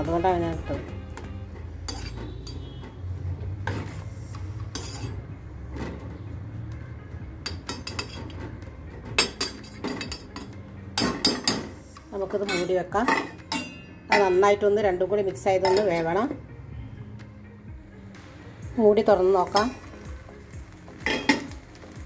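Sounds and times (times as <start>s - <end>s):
spatula scraping and knocking pot: 1.5s - 3.0s, 3.6s - 5.2s, 7.4s - 11.8s.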